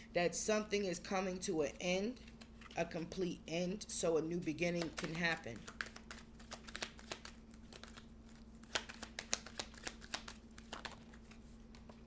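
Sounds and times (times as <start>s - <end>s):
faint steady hum: 0.0s - 12.0s
cards clicking and rustling: 4.8s - 12.0s.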